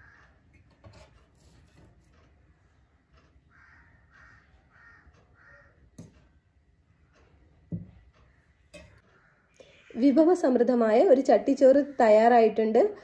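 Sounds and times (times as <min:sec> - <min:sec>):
crow cawing faintly: 0:00.0 - 0:00.5, 0:03.4 - 0:06.0, 0:08.2 - 0:10.1.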